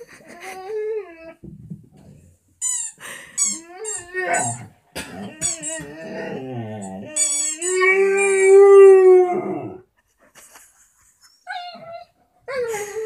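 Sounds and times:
rubber toy squeaking: 2.6 - 4.6, 5.3 - 6.3, 7.1 - 8.4
dog crying and howling: 3.5 - 9.8.

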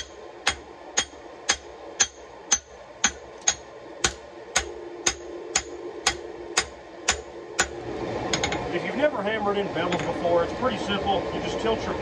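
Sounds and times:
hammer striking steel on anvil: 0.0 - 8.6.

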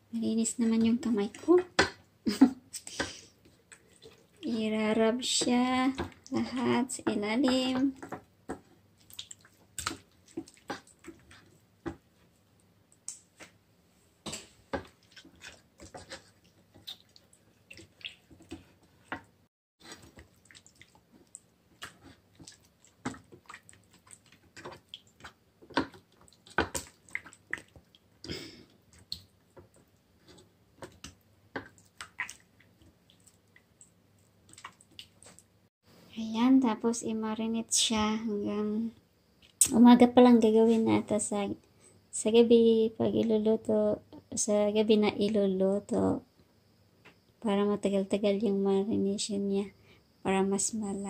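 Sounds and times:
hands squelching raw chicken: 9.0 - 11.6, 14.8 - 19.2, 19.8 - 28.3, 30.8 - 35.5.

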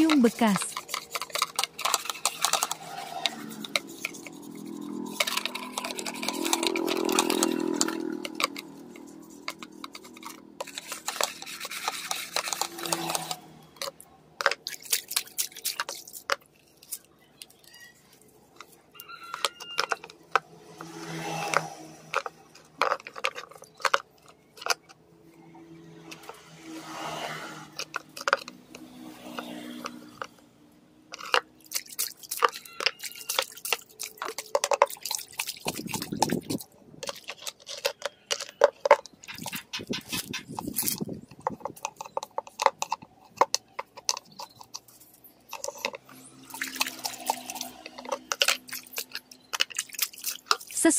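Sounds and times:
brush scrubbing: 0.0 - 17.1, 31.1 - 50.9
water sloshing in plastic dipper: 31.2 - 44.8, 45.5 - 50.9.

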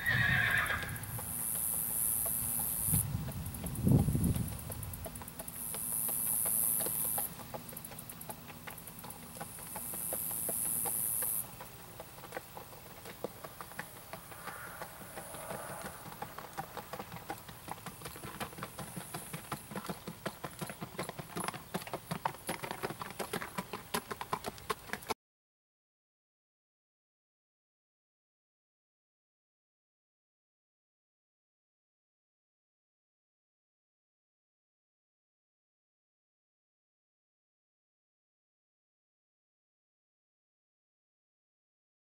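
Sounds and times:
hoofbeats on gravel: 0.0 - 25.2.

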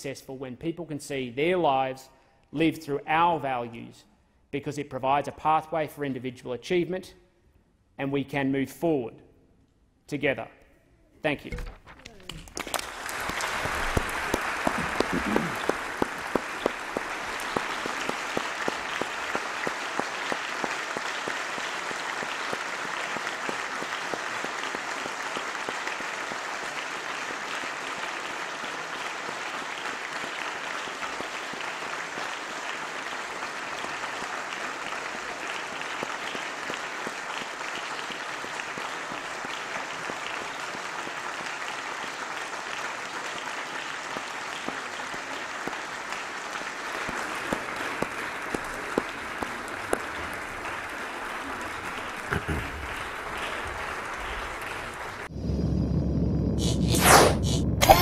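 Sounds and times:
crowd applauding: 12.2 - 55.3
loud sharp claps nearby: 12.3 - 55.3.

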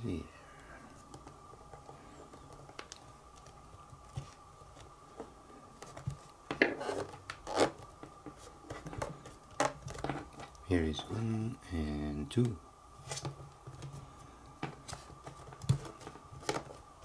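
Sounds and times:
plastic cover clicks and scrapes: 14.6 - 16.8.

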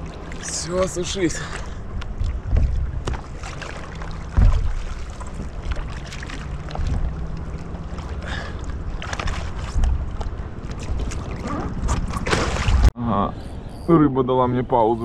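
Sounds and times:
water against boat hull: 0.0 - 12.9
wind on microphone: 1.8 - 3.4
knocks on boat: 2.4 - 3.3, 4.3 - 5.8
dull thump on boat: 2.4 - 3.4, 4.2 - 5.9.

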